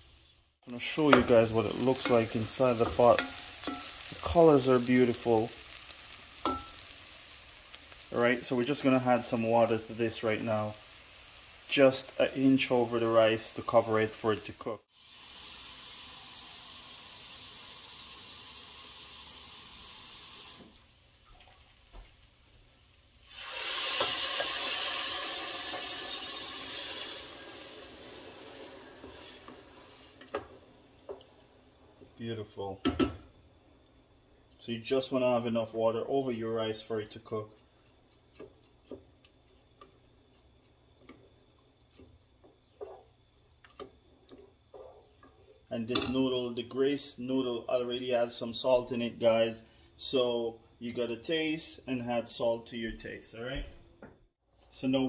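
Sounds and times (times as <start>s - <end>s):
rice sizzling in a pot: 0.0s - 52.5s
wooden spoon knocking a pot: 1.1s - 1.4s
water poured into hot pot: 14.8s - 21.7s, 23.1s - 30.2s.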